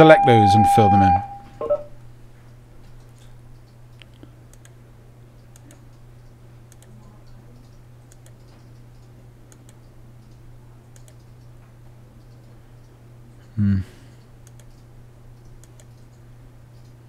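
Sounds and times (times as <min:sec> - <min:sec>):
low electrical hum: 0:00.0 - 0:17.0
computer mouse clicks: 0:02.9 - 0:04.8, 0:05.4 - 0:11.5, 0:12.2 - 0:12.9, 0:14.2 - 0:17.0.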